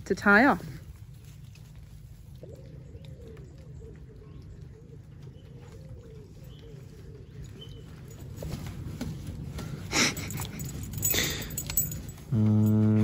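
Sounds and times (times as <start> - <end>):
pigeon cooing: 2.4 - 8.5.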